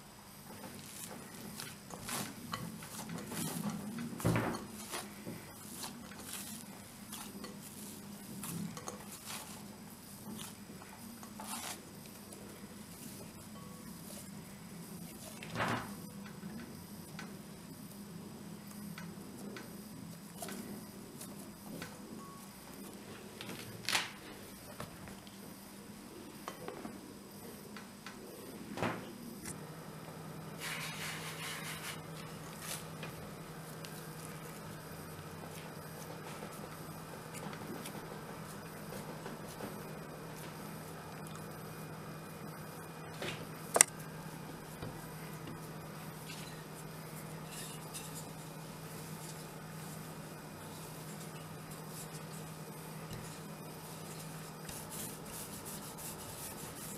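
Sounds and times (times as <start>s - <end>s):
rolling pin rolling dough: 0.0s - 23.7s, 30.5s - 56.9s
low steady hum: 0.0s - 56.9s
hands patting dough: 50.6s - 56.9s.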